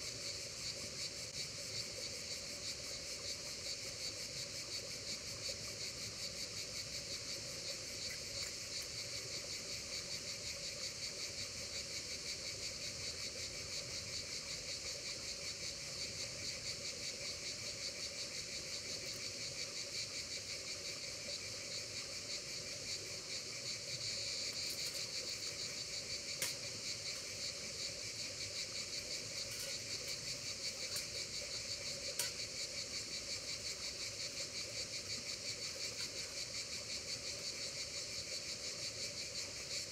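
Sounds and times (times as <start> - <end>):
insects shrilling: 23.6 - 38.4.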